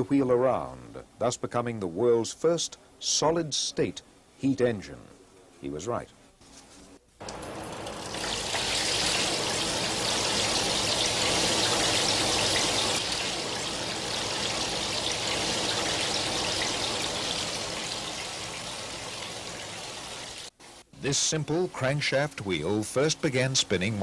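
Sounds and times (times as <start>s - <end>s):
water splashing and spraying: 7.2s - 20.5s.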